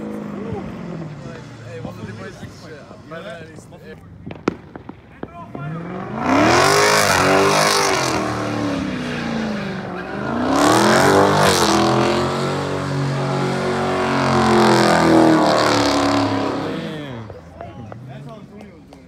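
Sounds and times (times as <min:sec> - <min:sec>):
car engine revving hard: 0:05.7 - 0:17.4.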